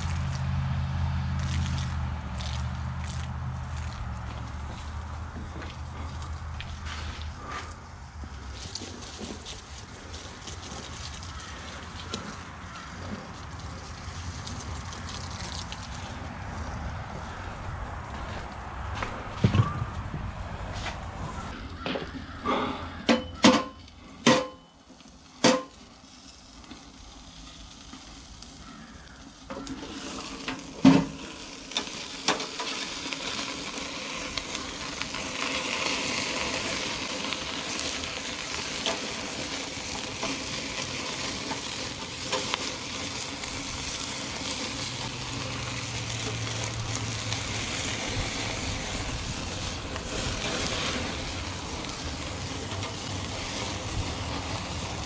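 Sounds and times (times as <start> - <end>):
burger patties sizzling: 0.0 - 19.3, 25.1 - 55.0
metal knocks of grill lid: 23.0 - 24.6.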